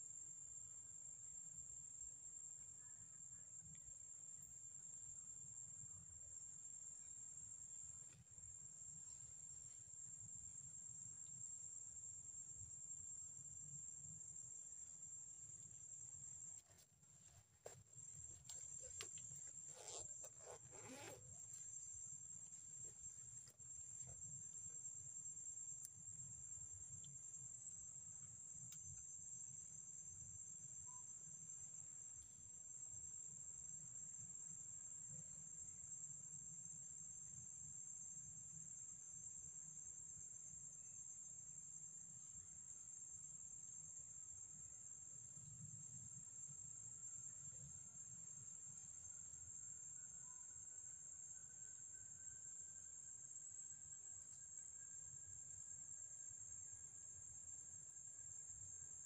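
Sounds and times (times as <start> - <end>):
rustling and clicks: 16.6 - 21.7
high-pitched insect chorus: 17.6 - 59.0.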